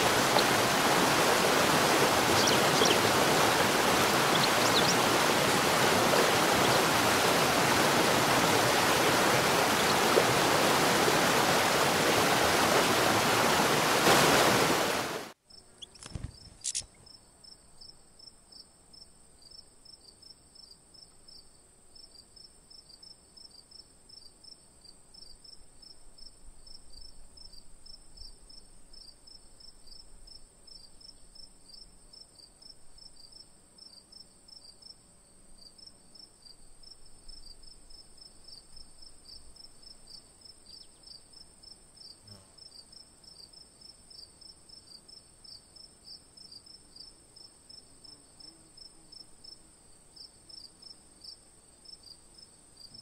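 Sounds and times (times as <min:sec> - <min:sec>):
insect chorus trilling and chirping: 0:00.0 - 0:11.4.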